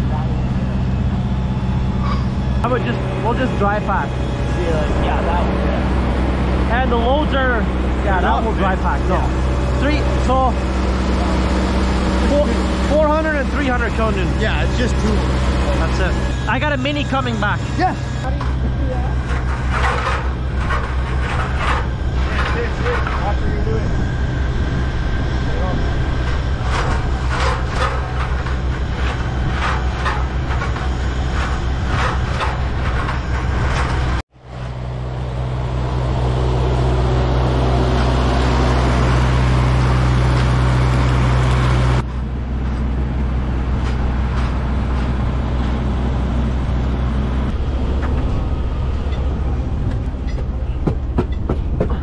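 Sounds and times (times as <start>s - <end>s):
engine drone with hiss: 0.0s - 52.0s
heavy construction machinery running: 0.0s - 52.0s
rapid repeated knocking: 50.8s - 52.0s.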